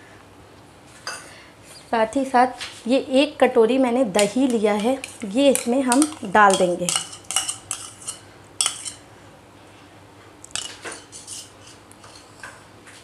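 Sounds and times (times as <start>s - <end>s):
metal spoon scraping bowl: 4.2s - 9.0s, 10.6s - 12.5s.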